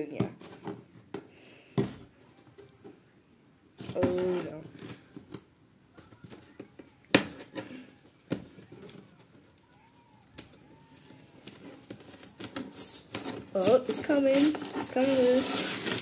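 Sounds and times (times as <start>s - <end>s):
packaging rustling: 8.6s - 16.0s.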